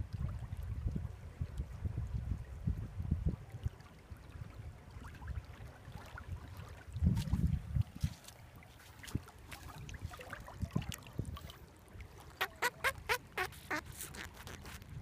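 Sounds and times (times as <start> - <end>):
puffer fish squeaky croaks: 12.3 - 14.8.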